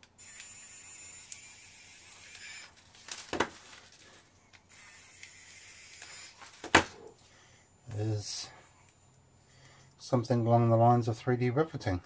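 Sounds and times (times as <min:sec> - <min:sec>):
small motor whirring: 0:00.1 - 0:03.0, 0:04.7 - 0:06.6.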